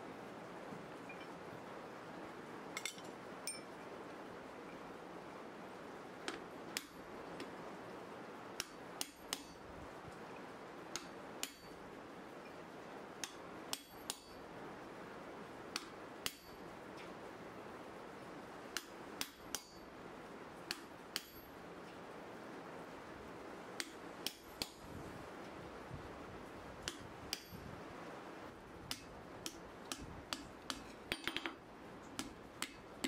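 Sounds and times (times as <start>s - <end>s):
steady hiss: 0.0s - 33.0s
hammer striking chisel on hot steel: 6.2s - 7.5s, 8.6s - 9.6s, 10.9s - 11.8s, 13.2s - 14.4s, 15.7s - 16.6s, 18.8s - 19.9s, 20.7s - 21.5s, 23.8s - 24.8s, 26.8s - 27.7s, 28.8s - 31.6s, 32.2s - 32.8s.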